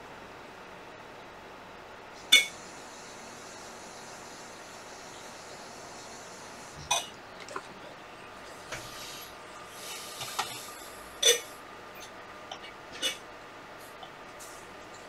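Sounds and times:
background hiss: 2.1 - 7.4, 8.0 - 11.6.

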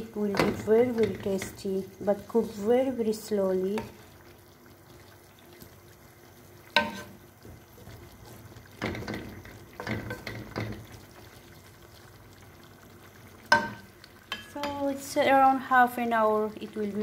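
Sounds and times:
sauce bubbling: 0.0 - 17.0
spatula stirring in pan: 0.2 - 2.6, 3.6 - 15.0
spatula knocking on pan: 6.7 - 7.1, 8.8 - 10.9, 13.5 - 14.5.

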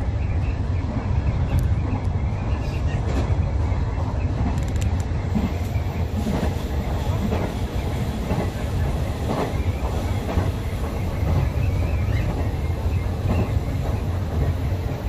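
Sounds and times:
train wheels rumbling on rails: 0.0 - 15.0.

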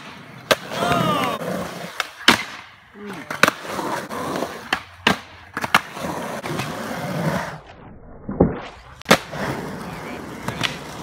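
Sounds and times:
skateboard wheels rolling on concrete: 0.0 - 11.0
skateboard clacking on concrete: 9.1 - 11.0.

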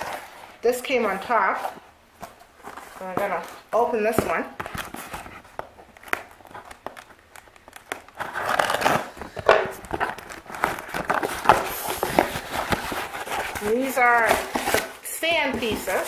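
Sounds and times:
packing material crinkling: 4.5 - 16.0.

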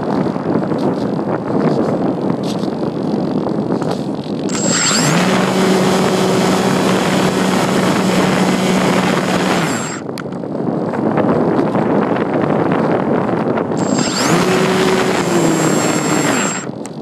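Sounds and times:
wind rushing past microphone: 0.0 - 17.0
motor and propeller whine: 4.5 - 10.2, 13.8 - 17.0.

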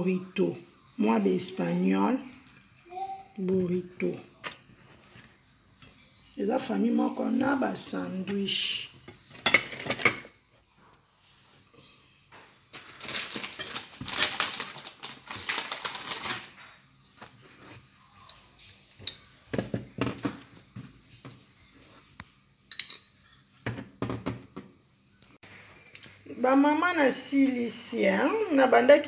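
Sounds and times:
rustling and scraping: 3.5 - 11.7, 12.5 - 22.4
dishes and utensils clicking: 9.0 - 10.4, 18.2 - 20.5, 22.7 - 24.4.

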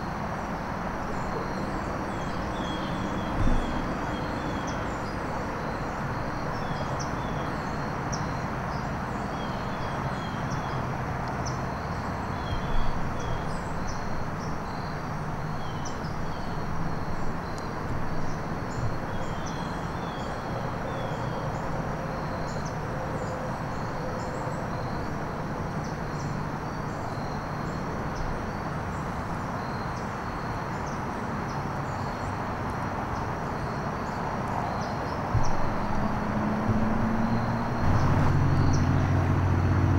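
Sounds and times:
small birds chirping: 33.1 - 39.2
low outdoor rumble: 35.3 - 39.9.

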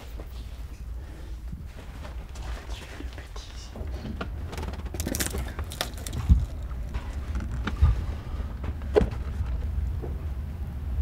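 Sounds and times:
steady low rumble: 0.0 - 11.0
people clambering over rock: 3.8 - 9.7.

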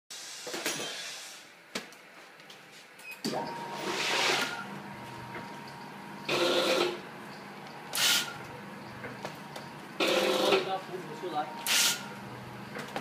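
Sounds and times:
machine hiss and clatter: 0.1 - 1.6, 7.9 - 8.4, 11.6 - 12.1
machine motor hum: 3.3 - 13.0.

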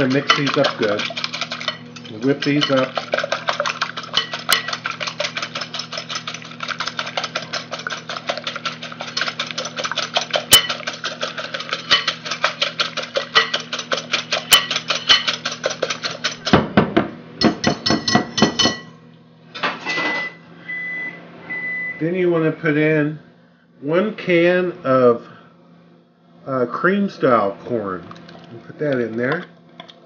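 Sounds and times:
whisk clicking against bowl: 0.0 - 16.6.

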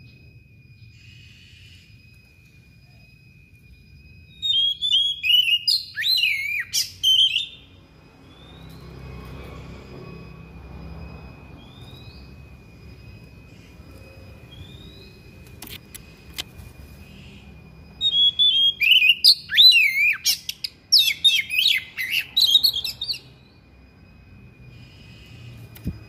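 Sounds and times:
bird singing whistles and chirps: 0.0 - 9.6, 11.6 - 12.6, 13.5 - 16.2, 16.8 - 23.6
faint steady high tone: 0.0 - 26.0.

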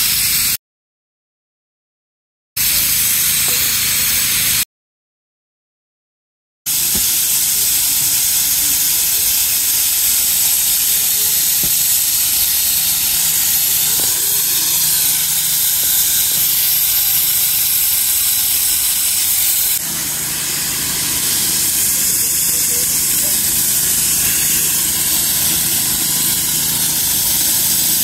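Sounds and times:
steam hissing: 0.0 - 0.6, 2.6 - 4.6, 6.7 - 28.0.

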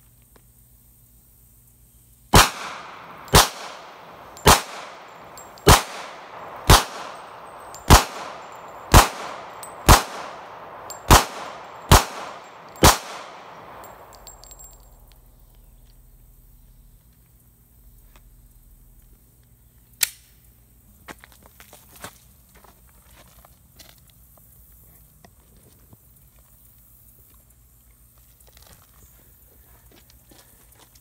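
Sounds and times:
pistol shots with echo: 2.4 - 14.6.

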